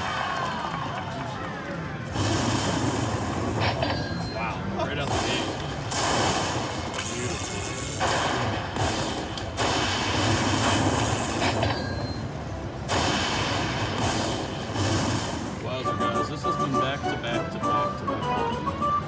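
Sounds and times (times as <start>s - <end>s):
slot machine thunder win effects: 13.0s - 19.0s.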